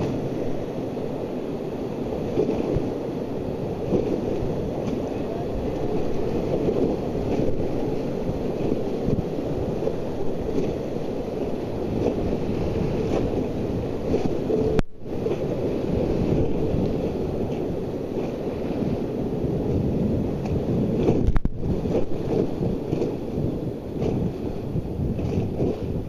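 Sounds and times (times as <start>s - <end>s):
whitewater rapids rushing: 0.0s - 19.8s
wind noise on microphone: 0.0s - 26.0s.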